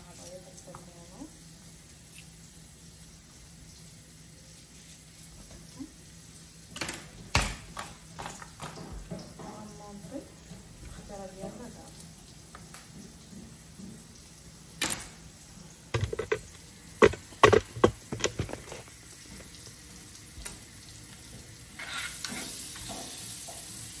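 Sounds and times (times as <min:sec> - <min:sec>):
food sizzling: 0:00.0 - 0:24.0
plastic colander knocking: 0:16.0 - 0:18.8.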